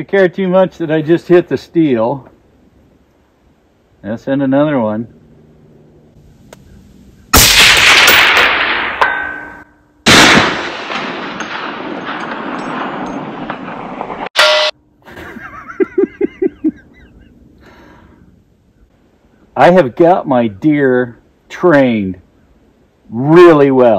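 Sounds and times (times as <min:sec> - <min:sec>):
rifle shot with echo: 0:07.4 - 0:09.4, 0:10.1 - 0:14.7
faint steel gong ring: 0:14.4 - 0:14.8.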